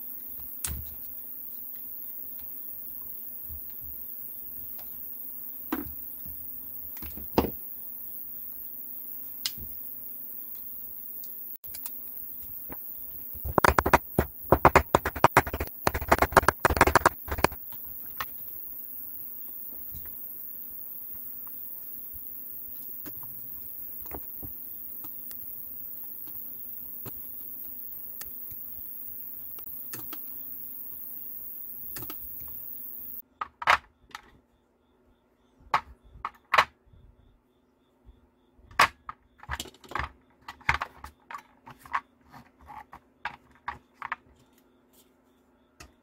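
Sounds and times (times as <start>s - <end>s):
steady high hiss: 0.0s - 33.2s
battery cells knocking together: 10.5s - 33.2s.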